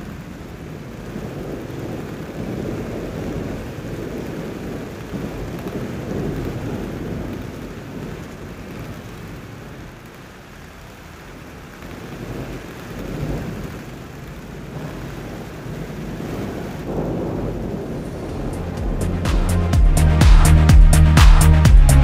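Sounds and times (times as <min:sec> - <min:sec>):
low rolling rumble: 0:16.8 - 0:22.0.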